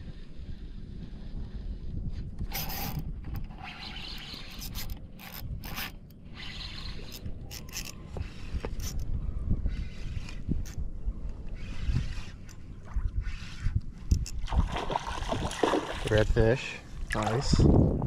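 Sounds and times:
fishing reel whirring: 0.0s - 14.5s
wind and water rumble: 0.0s - 18.0s.

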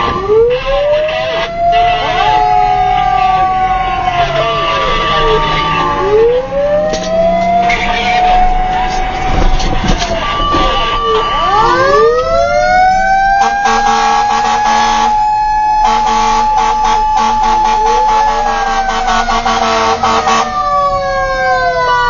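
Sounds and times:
fire truck siren wailing: 0.0s - 22.0s.

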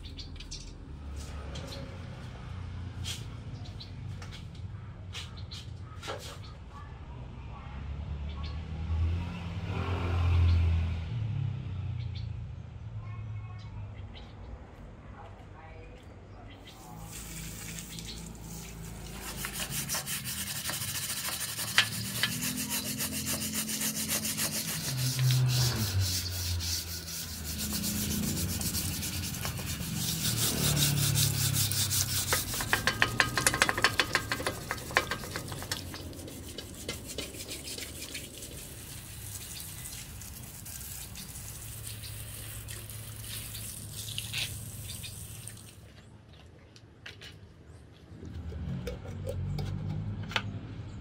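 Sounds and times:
stiff brush scrubbing metal: 16.7s - 44.7s.

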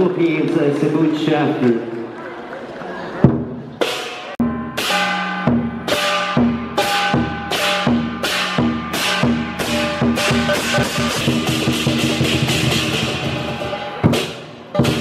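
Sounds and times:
large drum beating: 3.2s - 15.0s
hand cymbals crashing: 3.8s - 15.0s.

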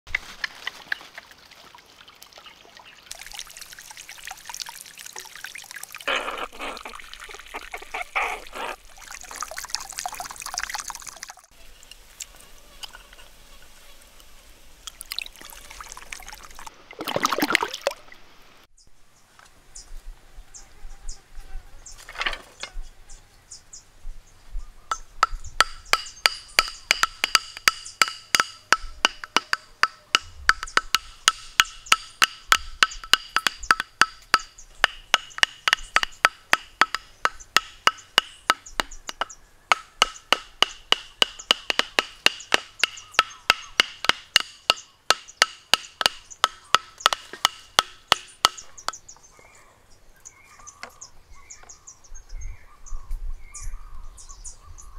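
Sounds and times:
water trickling into pond: 0.1s - 19.2s, 25.6s - 39.4s
stakes hammered into ground: 24.9s - 49.0s.

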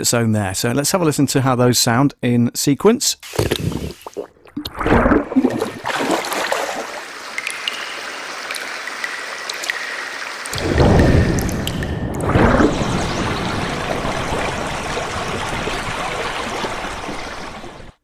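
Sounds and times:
water trickling: 3.2s - 17.9s
water gurgling and bubbling: 3.3s - 18.0s
deep water surge: 3.7s - 7.2s, 10.5s - 18.0s.

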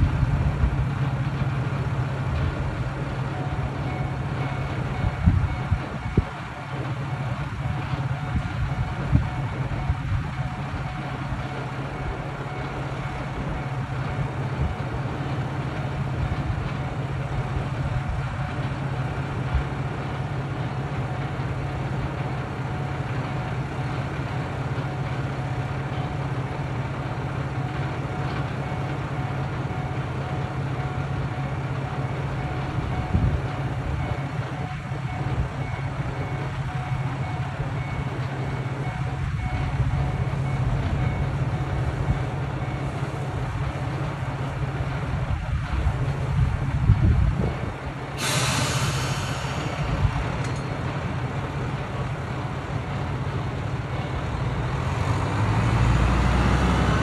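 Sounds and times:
diesel engine idling: 35.1s - 57.0s.

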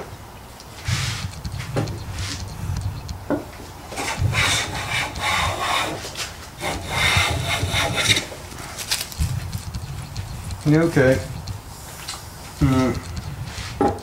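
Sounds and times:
hand plane cutting wood: 3.9s - 8.3s.

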